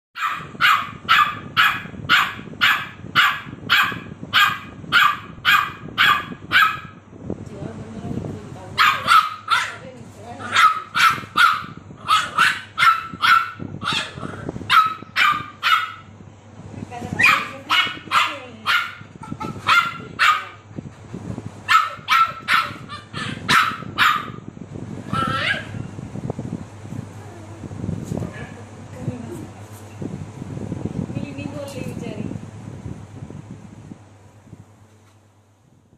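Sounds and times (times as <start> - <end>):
dog barking: 0.2 - 7.0, 8.8 - 9.8, 10.4 - 16.1, 17.2 - 20.6, 21.7 - 24.5, 25.1 - 25.8.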